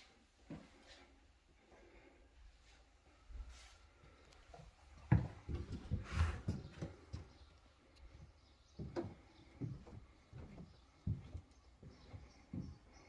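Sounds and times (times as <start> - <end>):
footsteps on wooden decking: 4.0 - 13.0.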